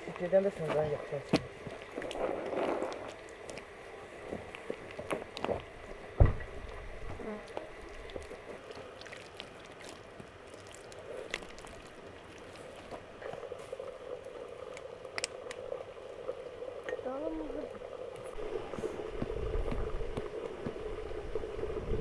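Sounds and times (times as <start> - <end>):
heavy thump: 6.2 - 6.5.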